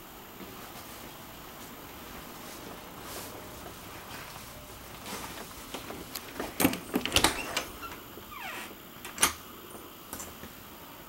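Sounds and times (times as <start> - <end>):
door squeak: 6.7 - 9.3.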